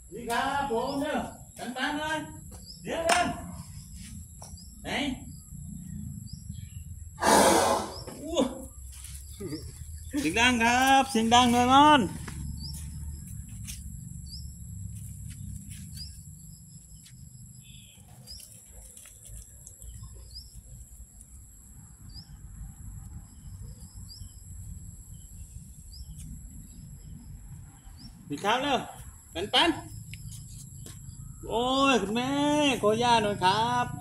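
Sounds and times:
bird chirping: 0:00.0 - 0:34.0
insects droning: 0:00.0 - 0:34.0.

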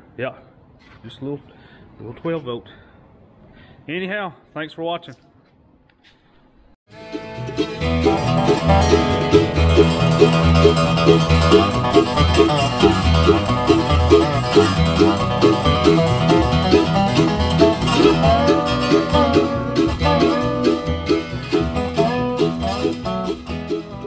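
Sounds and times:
music with quick beat: 0:06.9 - 0:24.0.

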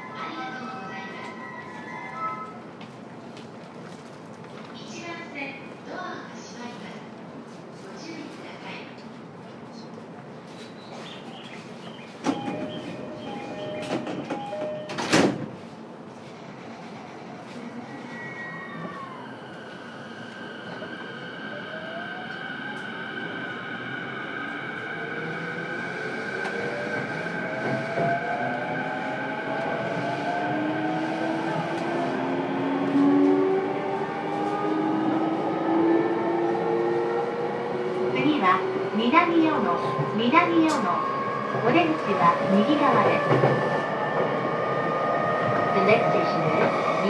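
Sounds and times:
train wheels on rails: 0:10.4 - 0:18.2, 0:24.7 - 0:47.0
train doors sliding shut: 0:12.1 - 0:15.8
two-note door chime: 0:12.4 - 0:15.1.

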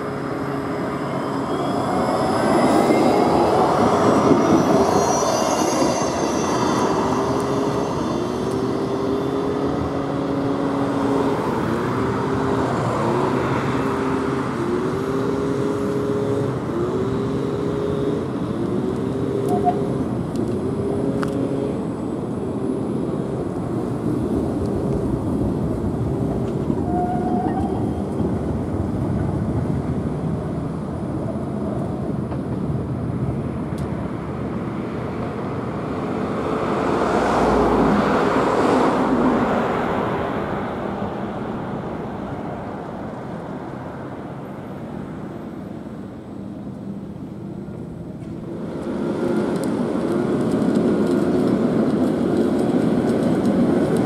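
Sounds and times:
high whine: 0:00.0 - 0:33.9
tram rumble: 0:00.0 - 0:54.0.

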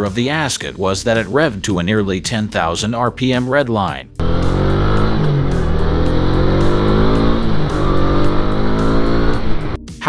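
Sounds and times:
motorcycle engine revving: 0:04.2 - 0:09.8.

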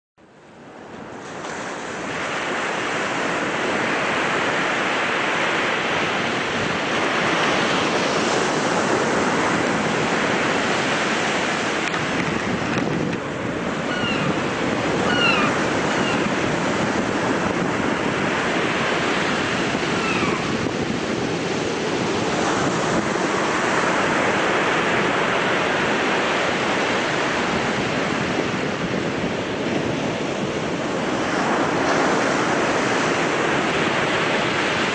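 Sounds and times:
sea surf breaking: 0:00.7 - 0:34.9
wind on microphone: 0:00.7 - 0:34.9
gull calls: 0:13.8 - 0:14.4, 0:15.0 - 0:16.3, 0:19.9 - 0:20.5.

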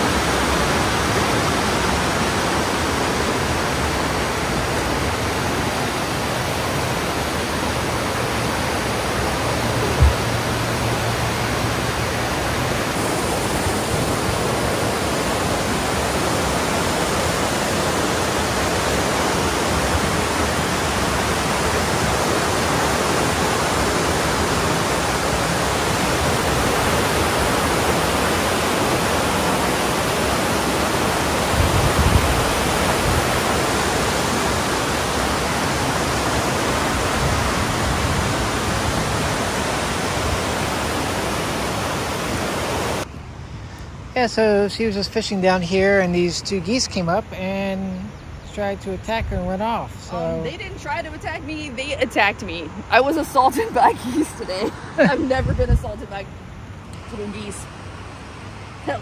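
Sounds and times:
running water rushing: 0:00.0 - 0:59.0
short low thump: 0:09.9 - 0:10.6.

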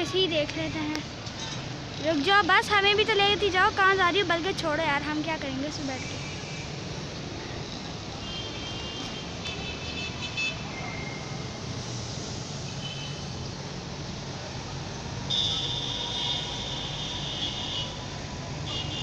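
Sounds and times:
street traffic: 0:00.0 - 0:19.0
high-pitched vehicle horns: 0:08.2 - 0:10.8, 0:15.3 - 0:19.0
long loud horn: 0:15.3 - 0:19.0.

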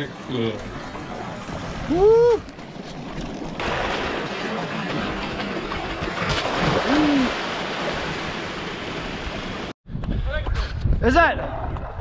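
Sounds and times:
person shouting: 0:01.9 - 0:02.4, 0:06.9 - 0:07.3
surf washing against rocks: 0:03.6 - 0:09.7.

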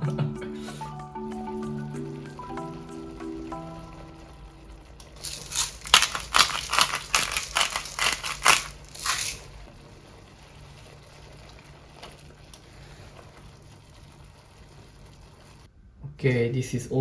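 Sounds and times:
pepper mill grinding: 0:05.2 - 0:09.5.

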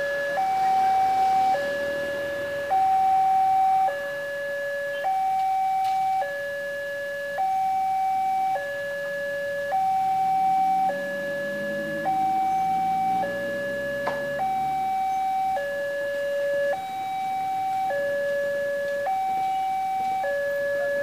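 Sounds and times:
two-tone crossing alarm: 0:00.0 - 0:21.0.

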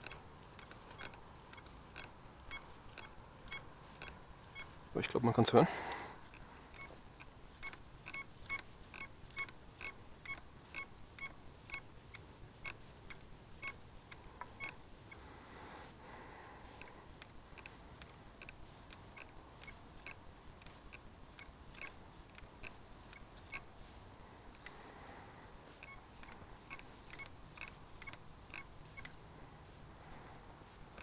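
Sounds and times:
metal detector beeps: 0:00.0 - 0:04.8, 0:25.8 - 0:29.1.

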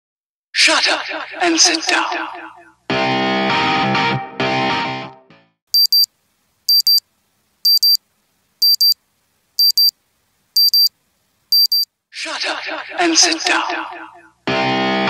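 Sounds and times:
high double beeps: 0:05.8 - 0:06.1, 0:06.7 - 0:07.0, 0:07.7 - 0:08.0, 0:08.6 - 0:09.0, 0:09.6 - 0:09.9, 0:10.6 - 0:10.9, 0:11.5 - 0:11.9.

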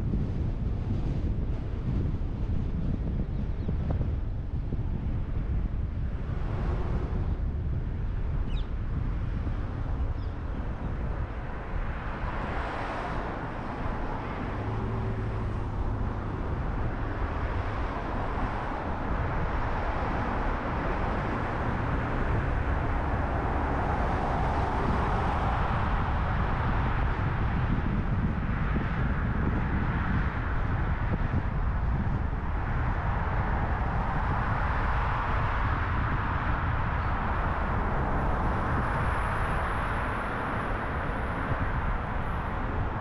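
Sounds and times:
wind noise: 0:00.0 - 0:43.0.

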